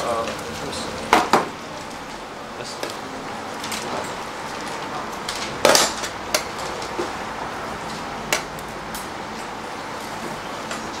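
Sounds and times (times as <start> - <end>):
room noise: 0.0 - 11.0.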